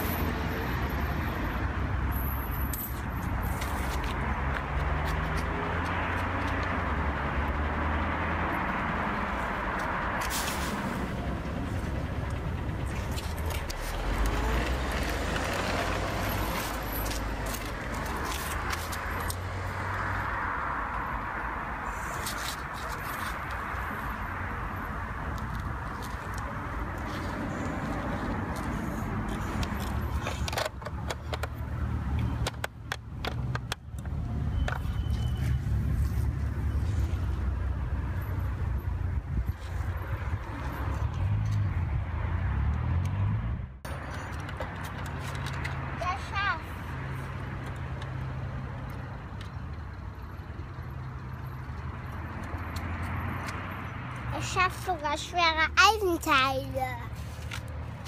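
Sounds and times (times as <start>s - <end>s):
road traffic rumble: 0.0s - 58.0s
heavy vehicle passing: 4.2s - 30.5s.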